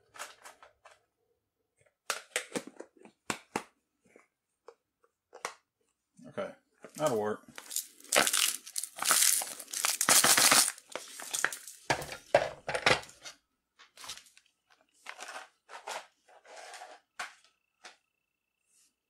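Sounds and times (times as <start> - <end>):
ice cubes clattering on plastic: 7.6 - 13.1.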